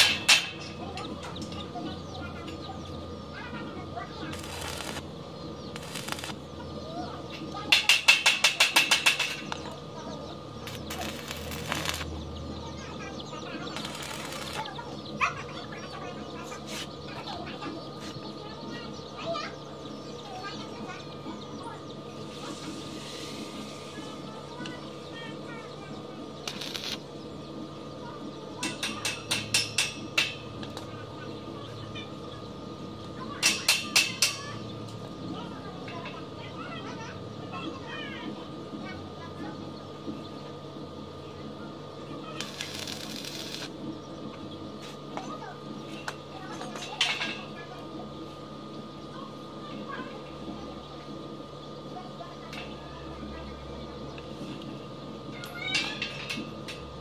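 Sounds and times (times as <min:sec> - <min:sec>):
welding arc crackling: 0:04.0 - 0:06.8, 0:07.7 - 0:15.4, 0:26.4 - 0:27.1, 0:42.2 - 0:43.8.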